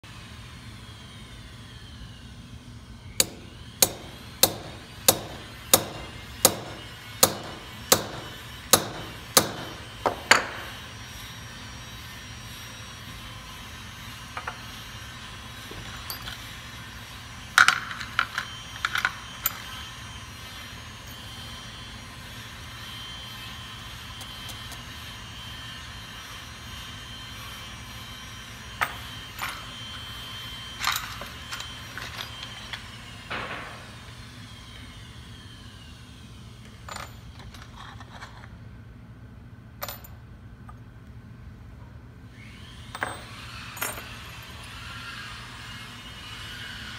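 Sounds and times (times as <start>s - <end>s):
hammer striking metal punch: 3.2s - 10.8s, 33.3s - 34.0s.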